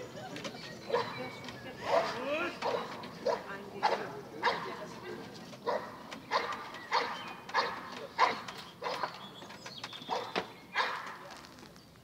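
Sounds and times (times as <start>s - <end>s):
dog barking: 0.9s - 1.2s, 1.9s - 4.7s, 5.6s - 9.2s, 10.1s - 11.1s.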